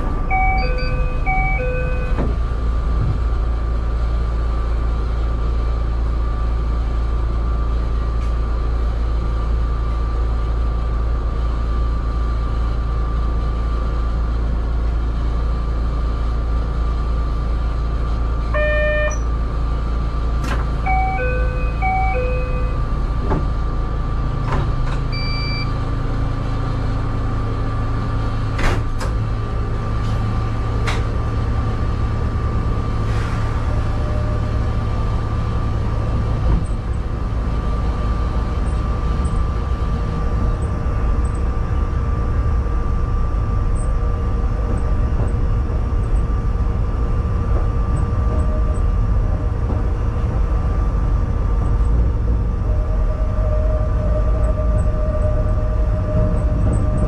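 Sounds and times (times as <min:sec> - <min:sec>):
train equipment humming: 0:00.0 - 0:57.0
electronic chime tunes: 0:00.3 - 0:02.1.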